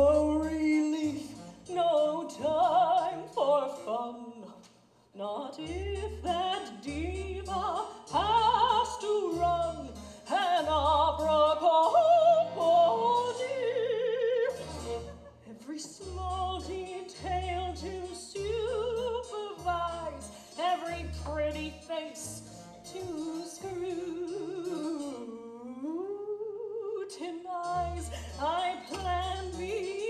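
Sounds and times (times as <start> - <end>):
woman singing operatically: 0.0 - 4.6, 5.2 - 30.0
instrumental accompaniment: 5.7 - 25.2.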